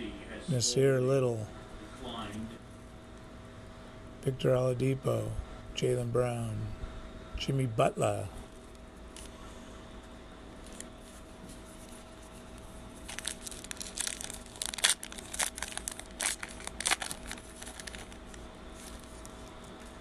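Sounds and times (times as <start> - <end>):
faint steady hum: 0.0 - 20.0
foil wrapper crinkling and tearing: 12.6 - 20.0.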